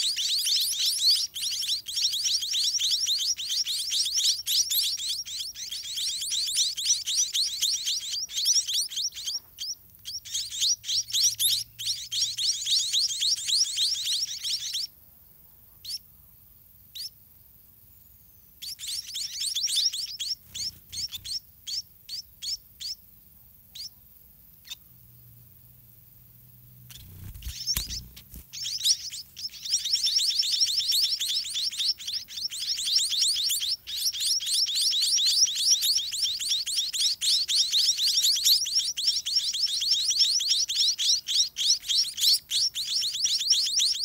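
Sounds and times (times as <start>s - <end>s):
bird chicks chirping: 0.0s - 15.0s, 15.7s - 17.2s, 17.9s - 25.4s, 26.4s - 44.0s.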